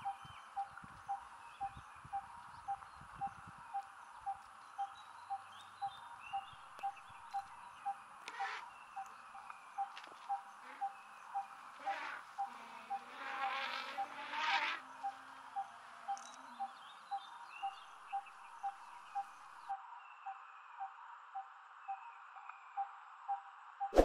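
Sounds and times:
buzzing insect: 10.6 - 15.5.

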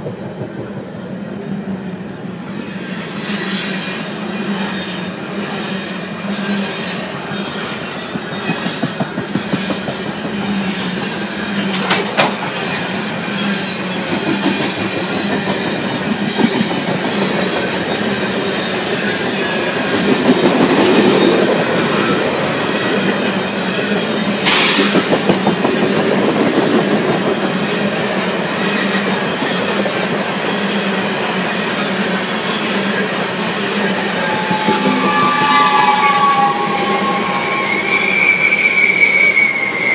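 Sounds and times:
freight train rattling: 0.0 - 39.9
train wheels clicking over rail joints: 7.7 - 30.7
wheel squeal: 33.8 - 39.9.

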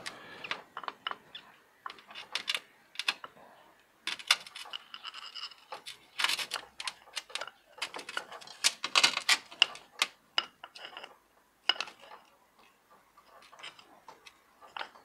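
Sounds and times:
hand tool clicking and scraping: 4.1 - 11.1.

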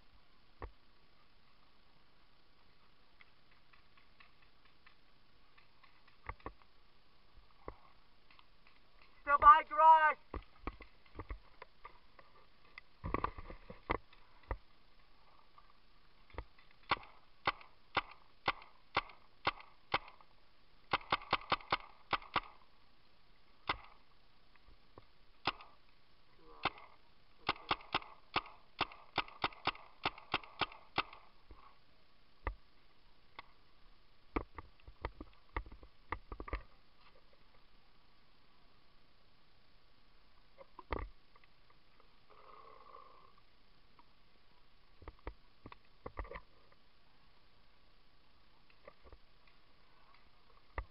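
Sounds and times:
paintball markers firing pops: 16.3 - 20.3, 20.9 - 22.6, 23.6 - 24.0, 25.4 - 25.8, 26.6 - 31.3.

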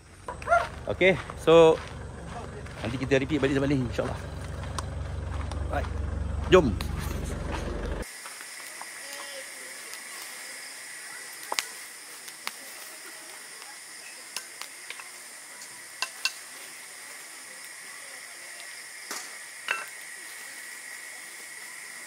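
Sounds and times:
campfire crackling: 0.0 - 22.0
steady high hiss: 8.0 - 22.0.

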